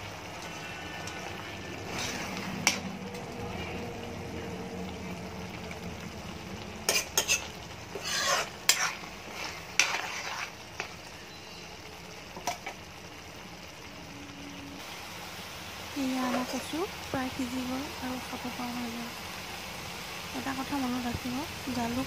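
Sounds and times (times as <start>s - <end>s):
curry sizzling: 0.0s - 22.0s
metal spoon scraping pan: 0.4s - 3.8s, 6.8s - 11.0s.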